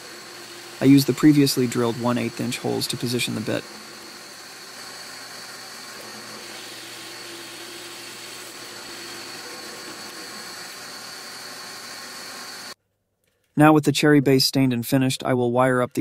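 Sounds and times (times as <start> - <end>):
drill press whining: 0.0 - 12.8.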